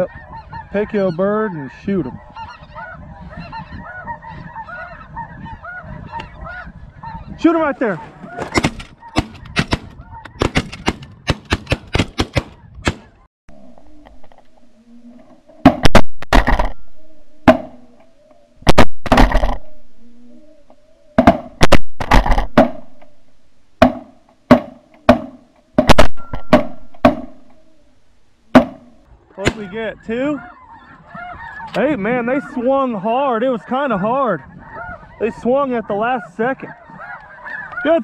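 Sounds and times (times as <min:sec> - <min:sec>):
geese calling: 0:00.0 - 0:11.8, 0:12.4 - 0:38.0
shotguns firing: 0:15.6 - 0:16.8, 0:18.7 - 0:19.6, 0:21.2 - 0:23.0, 0:23.8 - 0:27.4, 0:28.5 - 0:29.7.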